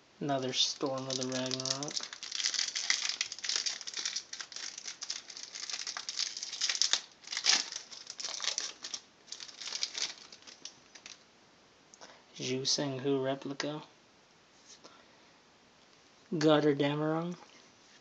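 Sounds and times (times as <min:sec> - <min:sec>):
foil wrapper crinkling: 0:00.4 - 0:11.2.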